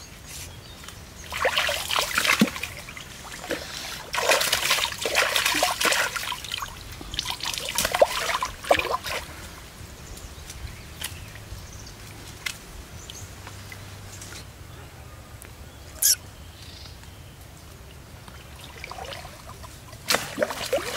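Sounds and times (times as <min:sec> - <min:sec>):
water drips and ripples: 0:00.7 - 0:14.6, 0:17.0 - 0:20.9
water splashing from wading: 0:01.2 - 0:09.6, 0:18.5 - 0:20.9.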